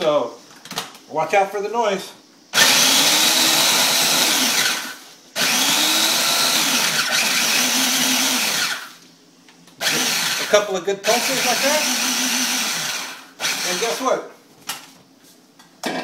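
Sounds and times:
food processor grinding crackers: 2.6s - 9.0s, 9.8s - 14.1s.

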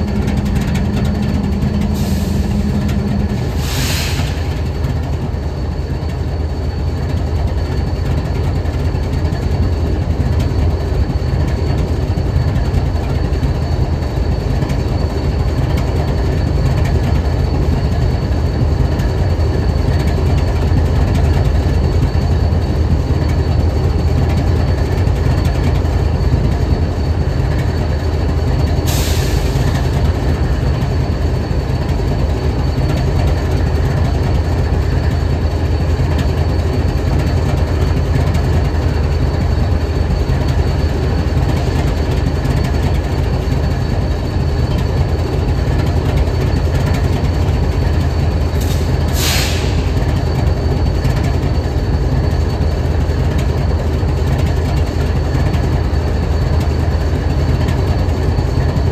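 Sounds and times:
locomotive engine idling: 0.0s - 58.9s
brief hisses: 3.6s - 4.6s, 48.6s - 49.9s.

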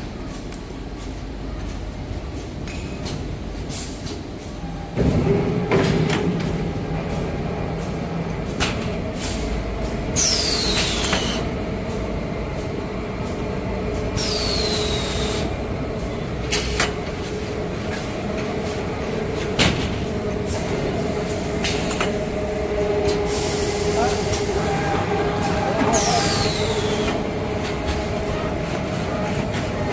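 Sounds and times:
hiss with falling whistle: 26.0s - 27.1s.

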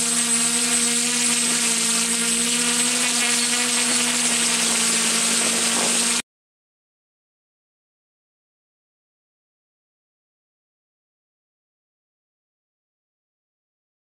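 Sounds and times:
drone motors and propellers buzzing: 0.0s - 6.2s
thin high whine: 0.0s - 6.2s.

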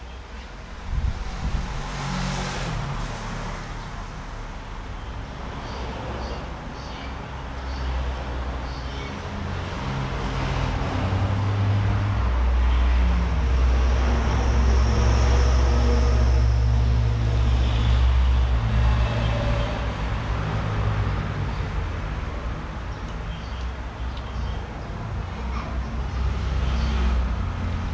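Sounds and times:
heavy vehicle engine drone: 11.7s - 22.9s.

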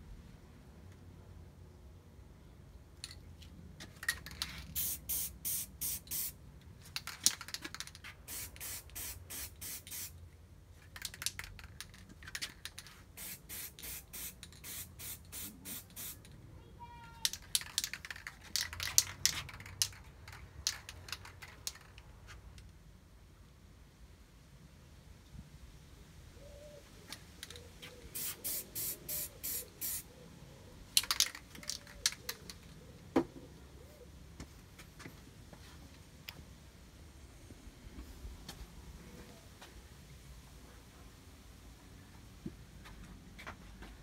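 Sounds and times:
aerosol spray hissing: 4.8s - 6.4s, 8.3s - 10.1s, 13.2s - 16.2s, 28.1s - 30.0s.

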